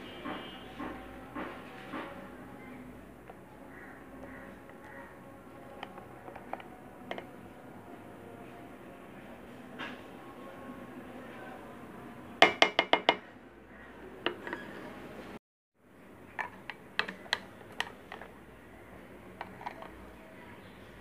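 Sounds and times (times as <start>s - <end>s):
spatula knocking in blender jar: 12.4s - 13.2s.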